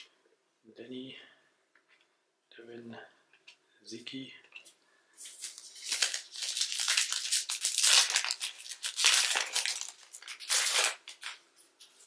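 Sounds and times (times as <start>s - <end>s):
wrapper crinkling and tearing: 5.4s - 11.4s.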